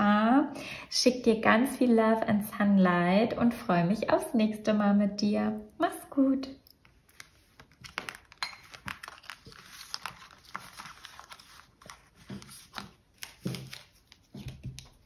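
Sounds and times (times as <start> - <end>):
cards rustling: 6.8 - 15.0.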